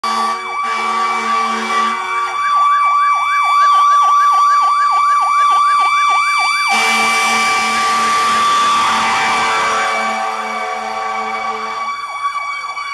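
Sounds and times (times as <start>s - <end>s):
air horn blare: 0.0s - 2.4s, 6.6s - 12.0s
siren yelping: 0.0s - 12.9s
steady high siren tone: 0.0s - 12.9s.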